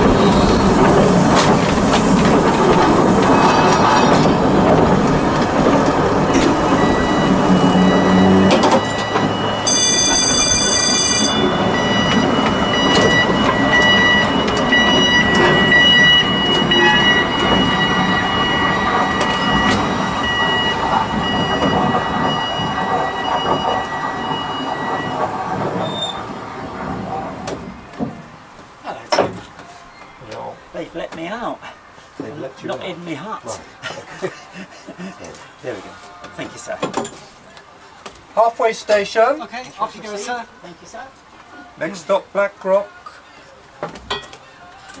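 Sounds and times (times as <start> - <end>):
wheels squealing: 0.0 - 28.5
steel wheels rumbling on rails: 0.0 - 29.6.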